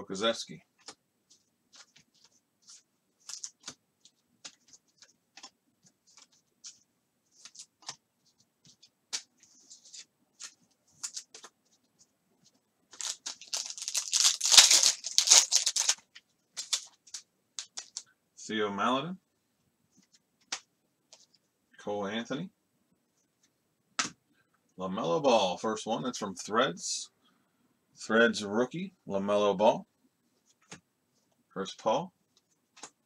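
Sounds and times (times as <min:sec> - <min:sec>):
wrapper crinkling and tearing: 0:12.9 - 0:16.0, 0:16.6 - 0:18.0.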